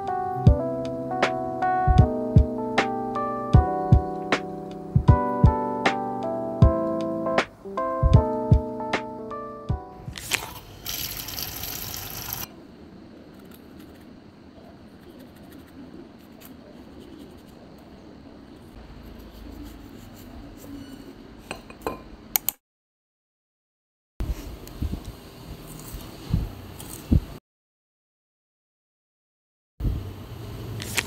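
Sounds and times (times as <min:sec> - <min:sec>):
piano music: 0:00.0 - 0:10.1.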